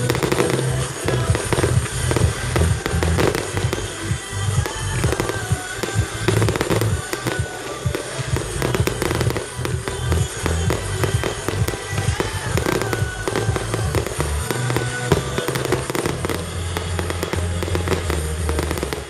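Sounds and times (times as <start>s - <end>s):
fireworks bursting with cracks: 0.0s - 19.0s
music with low bass: 0.0s - 19.0s.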